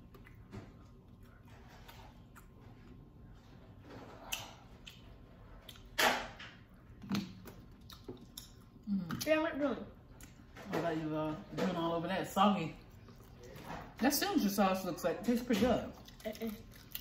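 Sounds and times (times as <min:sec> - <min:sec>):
quiet chewing: 0:00.0 - 0:06.0, 0:06.9 - 0:09.3, 0:12.8 - 0:13.9, 0:15.9 - 0:17.0.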